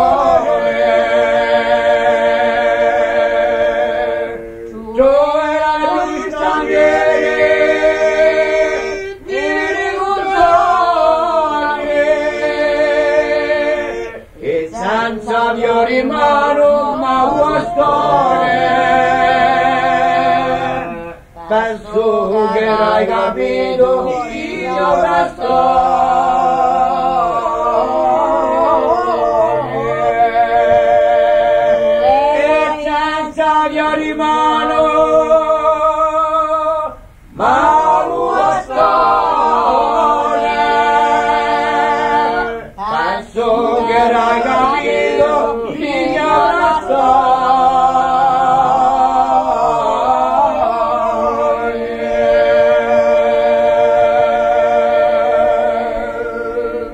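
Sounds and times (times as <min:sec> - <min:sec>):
group singing in harmony: 0:00.0 - 0:56.9.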